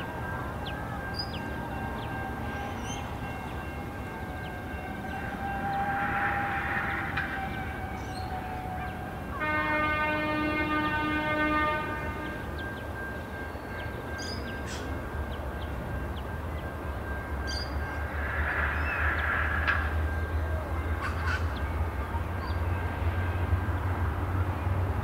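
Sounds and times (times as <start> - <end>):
locomotive horn blast: 4.5 - 12.5.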